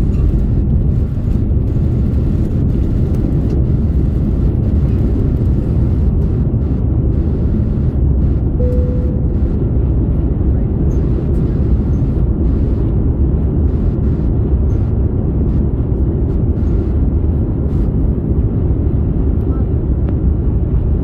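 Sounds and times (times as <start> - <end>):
jet engines rumbling in cabin: 0.0 - 21.0
short steady tone: 8.6 - 9.8.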